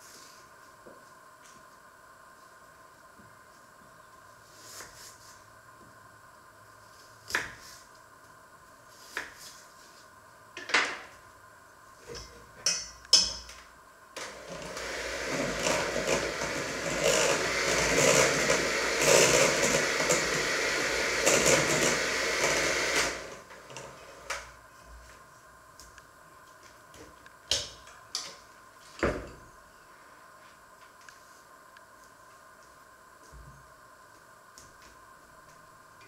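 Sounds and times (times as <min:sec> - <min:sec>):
electric mixer in metal bowl: 0:14.2 - 0:24.3.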